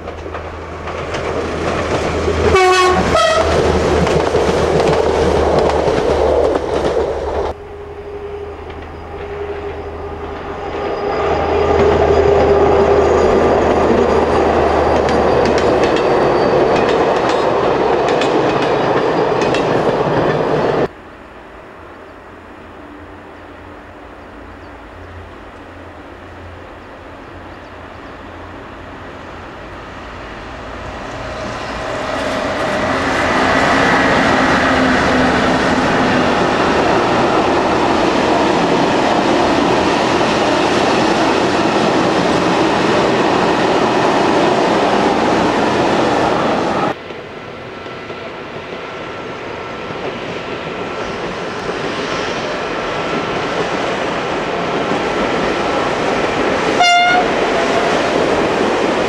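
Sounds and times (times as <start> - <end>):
freight train rumbling and clattering: 0.0 - 7.6, 8.3 - 21.0, 24.6 - 59.0
train horn blast: 2.4 - 3.7, 56.7 - 58.0.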